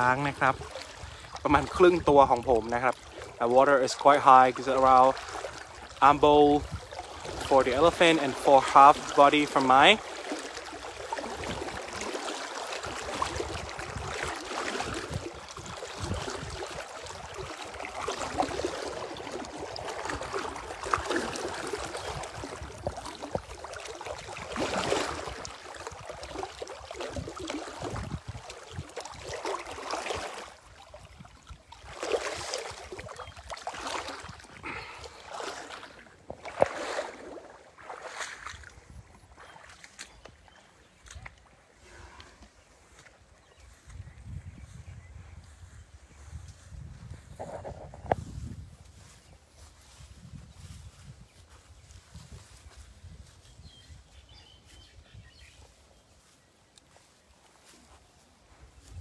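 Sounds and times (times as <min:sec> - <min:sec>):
water sloshing from wading: 0:00.0 - 0:44.8.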